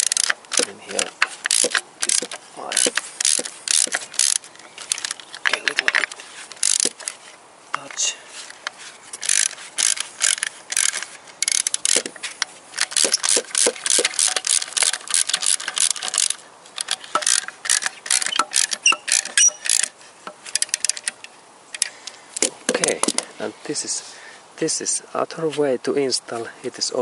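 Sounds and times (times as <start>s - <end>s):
ratchet wrench clicking: 0.0s - 5.2s, 6.6s - 7.2s, 9.2s - 12.1s, 12.8s - 19.9s.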